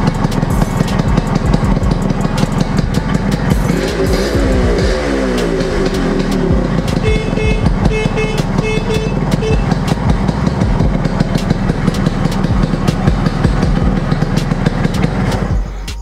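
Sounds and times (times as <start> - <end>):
motorcycle engine idling: 0.0 - 16.0
horn short beeps: 7.0 - 9.8.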